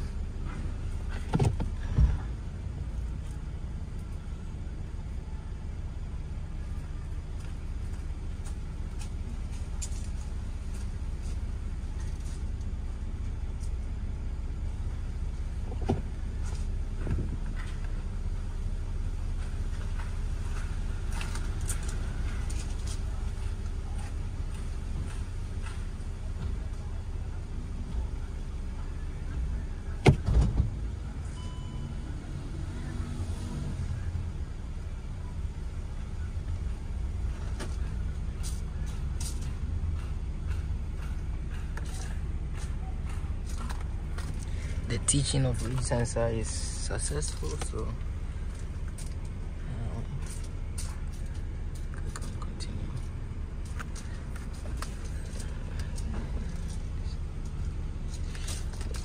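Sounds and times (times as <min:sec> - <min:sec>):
car engine idling: 0:00.0 - 0:59.0
short thump: 0:30.0 - 0:30.8
faint short beep: 0:31.3 - 0:32.2.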